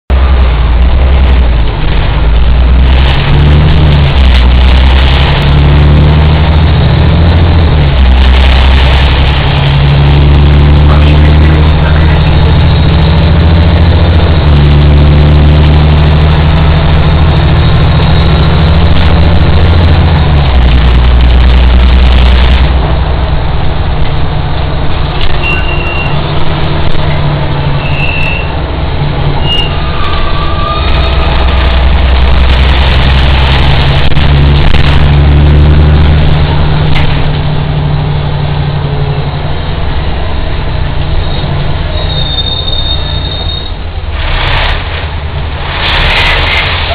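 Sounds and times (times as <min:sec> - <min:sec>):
bus engine droning: 0:00.1 - 0:46.9
short high squeals: 0:25.2 - 0:26.3, 0:27.8 - 0:28.6, 0:29.4 - 0:31.9, 0:41.2 - 0:44.8
hiss: 0:44.2 - 0:46.9.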